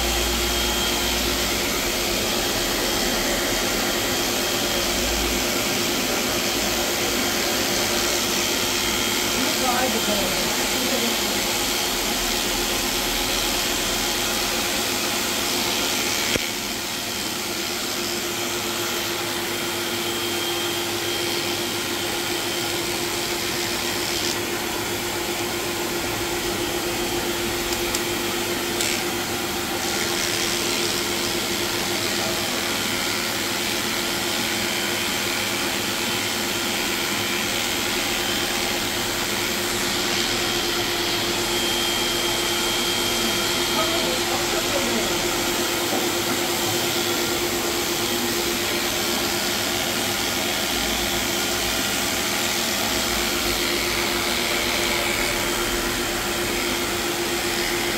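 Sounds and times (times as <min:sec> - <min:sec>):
electric clipper running: 0:00.0 - 0:57.9.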